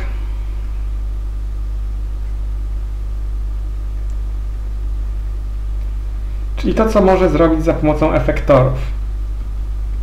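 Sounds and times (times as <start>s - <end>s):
constant buzz: 0.0s - 10.0s
low electrical hum: 0.0s - 10.0s.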